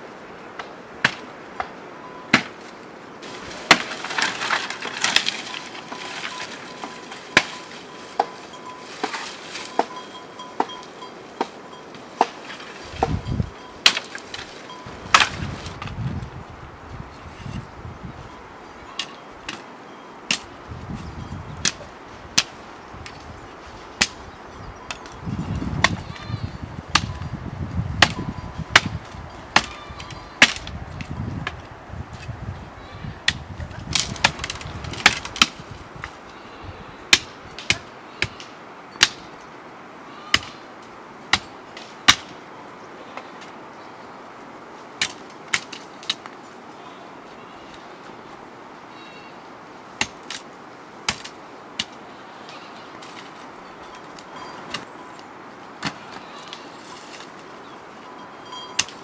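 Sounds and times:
sickle chopping woody branches: 0:00.5 - 0:16.0, 0:19.0 - 0:19.7, 0:20.3 - 0:20.5, 0:21.6 - 0:23.2, 0:24.0 - 0:24.2, 0:25.8 - 0:26.0, 0:26.9 - 0:27.2, 0:28.0 - 0:31.6, 0:33.2 - 0:36.2, 0:37.1 - 0:39.4, 0:40.3 - 0:40.6, 0:41.3 - 0:42.4, 0:45.0 - 0:46.4, 0:50.0 - 0:52.0, 0:53.0 - 0:54.9, 0:55.8 - 0:57.4, 0:58.8 - 0:59.0
scuffing and rustling: 0:55.8 - 0:57.5.

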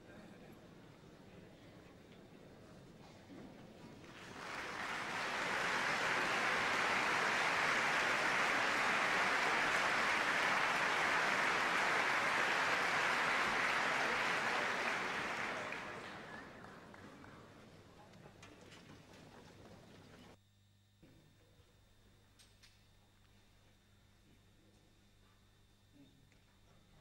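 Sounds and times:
audience applauding: 0:04.0 - 0:17.9.

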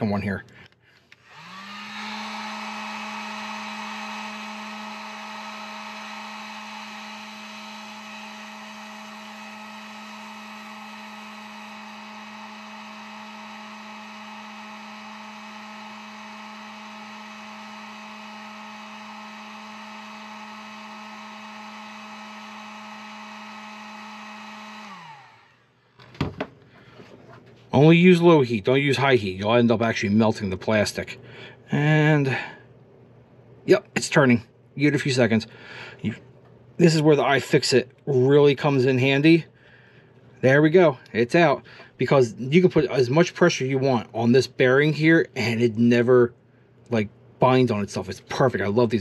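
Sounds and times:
heat gun fan whine and hiss: 0:00.5 - 0:27.2.

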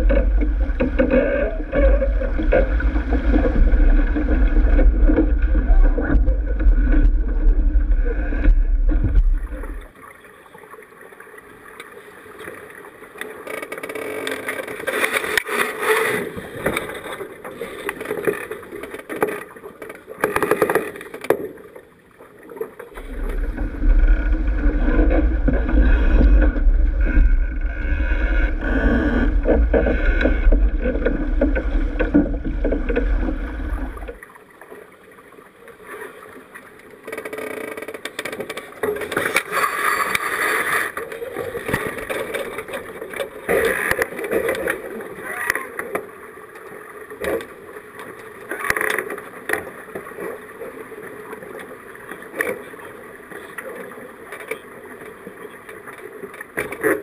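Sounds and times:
wind rumbling on microphone: 0:00.0 - 0:09.9, 0:23.0 - 0:34.2
water rushing along hull: 0:00.0 - 0:57.0.

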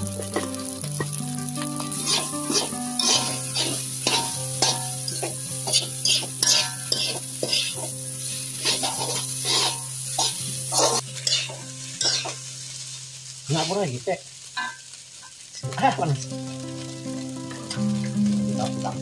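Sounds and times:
frying sizzle: 0:00.0 - 0:19.0
metal spatula scraping a wok: 0:01.0 - 0:12.6.

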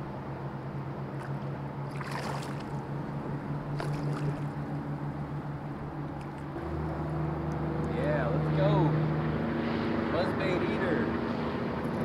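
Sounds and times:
low motor hum: 0:00.0 - 0:12.0
fish splashing at water surface: 0:01.2 - 0:02.9, 0:03.7 - 0:04.7.

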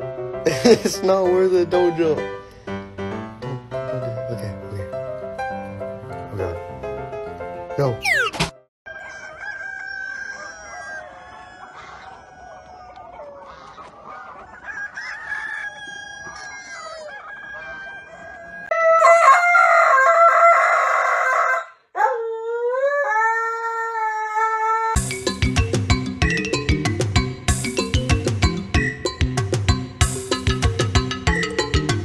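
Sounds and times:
chickens clucking: 0:08.9 - 0:18.9
rooster crowing: 0:08.9 - 0:25.0.

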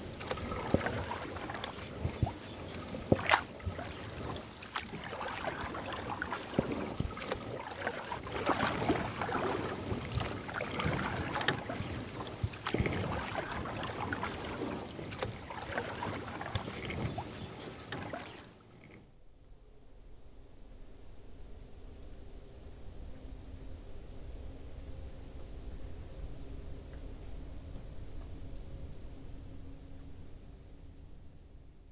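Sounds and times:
paddle splashing: 0:00.0 - 0:19.0
water washing around hull: 0:00.0 - 0:19.0.

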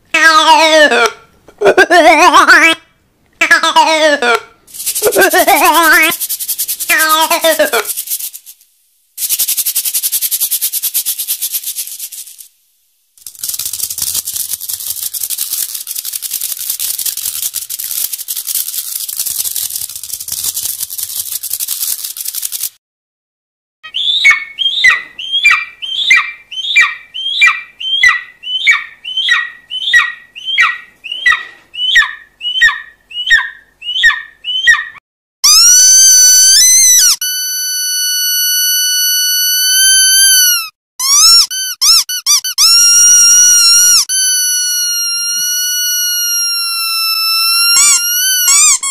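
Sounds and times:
rapid dry rattling: 0:04.7 - 0:12.6, 0:13.2 - 0:22.8
short chirping squeaks: 0:35.4 - 0:48.9.

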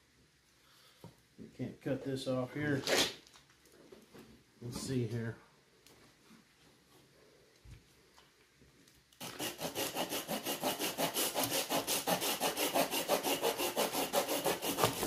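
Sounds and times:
saw cutting wood: 0:09.2 - 0:15.0.

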